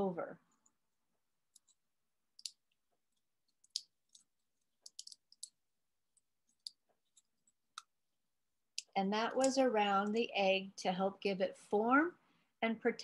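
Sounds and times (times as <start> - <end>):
crinkling clicks of egg membrane: 1.4 - 8.0, 8.7 - 9.6.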